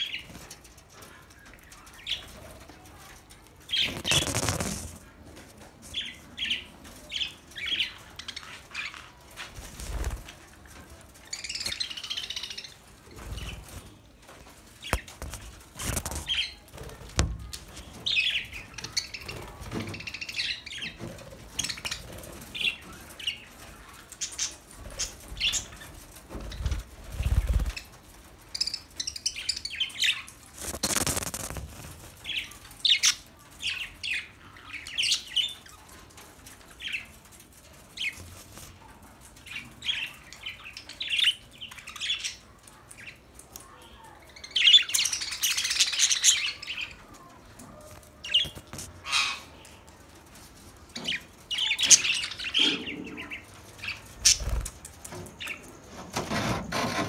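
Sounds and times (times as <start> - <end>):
budgerigars chirping and chattering: 3.7 - 5.0, 28.6 - 35.8, 44.3 - 47.0, 48.2 - 49.6, 50.9 - 54.8.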